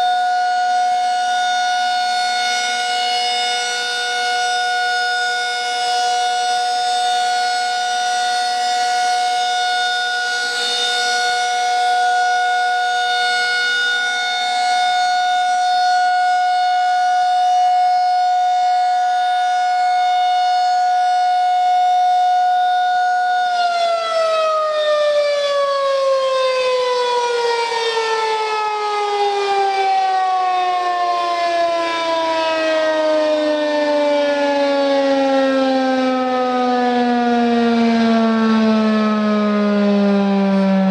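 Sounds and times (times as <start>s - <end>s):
rotating siren alert tone: 0.0s - 40.9s.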